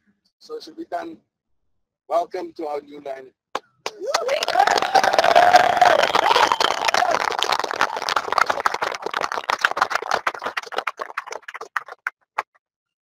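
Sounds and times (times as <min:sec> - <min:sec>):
crowd clapping: 0:03.8 - 0:12.6.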